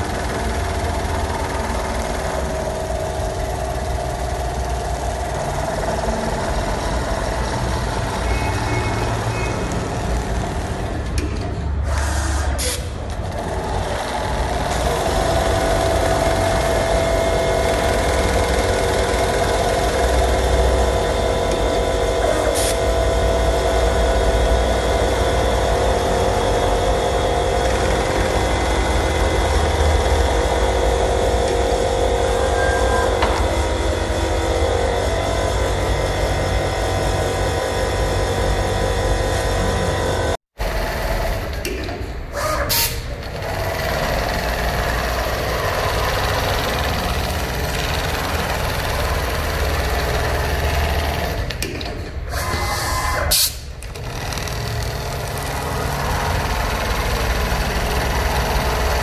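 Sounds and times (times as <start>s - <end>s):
sewing machine humming: 0.0s - 41.6s, 42.2s - 59.0s.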